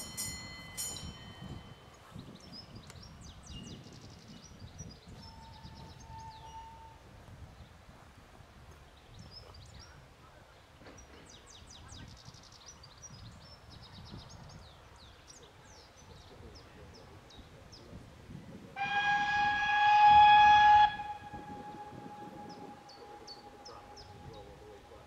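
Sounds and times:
steam locomotive whistle: 0:05.2 - 0:07.0, 0:18.8 - 0:25.0.

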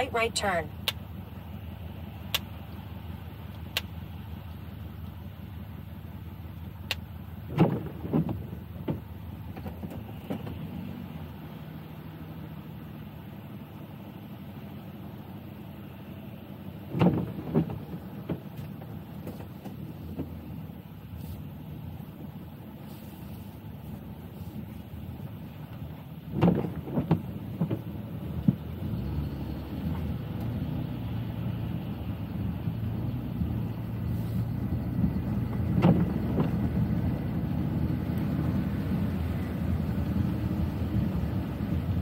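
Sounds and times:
car engine and tyres rumbling: 0:00.0 - 0:42.0
sharp knocks and thumps: 0:07.5 - 0:10.6, 0:16.9 - 0:20.4, 0:26.3 - 0:28.6, 0:35.5 - 0:36.6.

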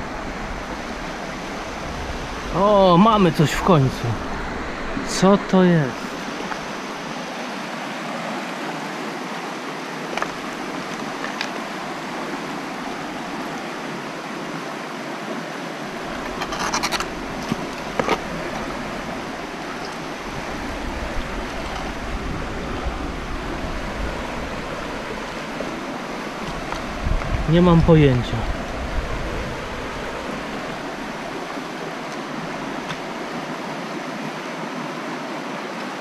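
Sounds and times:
river flowing over stones: 0:00.0 - 0:36.0
knocks and scrapes: 0:16.1 - 0:18.7.

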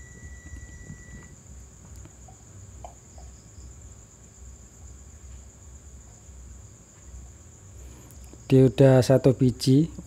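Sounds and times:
multimeter buzzer beeping: 0:00.0 - 0:01.4
crickets chirring: 0:00.0 - 0:10.0.

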